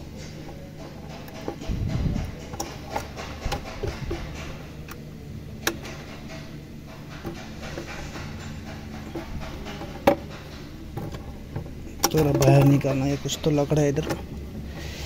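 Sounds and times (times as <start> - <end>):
clicks and knocks of parts: 0.0 - 5.0, 5.6 - 15.0
steady low hum: 0.0 - 15.0
heavy low rumble: 1.6 - 2.6.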